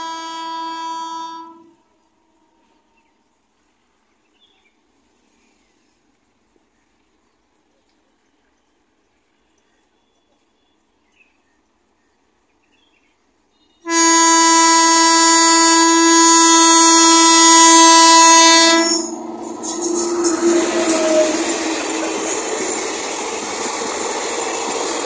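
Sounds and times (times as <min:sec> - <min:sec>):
locomotive air horn blast: 0:00.0 - 0:02.9, 0:13.8 - 0:22.9
train passing close: 0:13.8 - 0:25.0.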